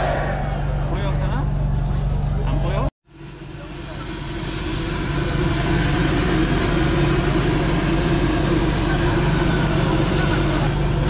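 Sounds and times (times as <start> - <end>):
low machine hum: 0.0 - 11.0
vapour jet rushing: 3.1 - 11.0.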